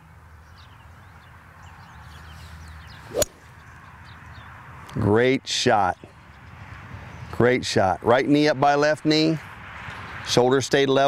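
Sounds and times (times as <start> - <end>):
golf club striking ball: 3.1 - 3.5.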